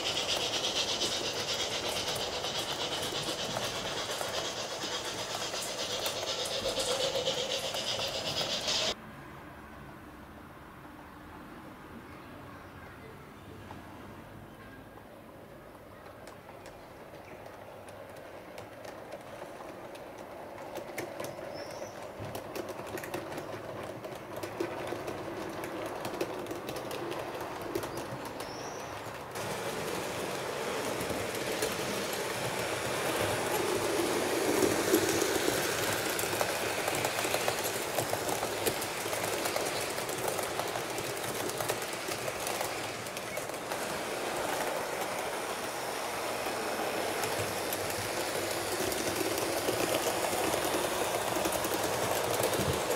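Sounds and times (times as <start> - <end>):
model train wheels clicking: 0.0 - 9.0, 16.0 - 52.9.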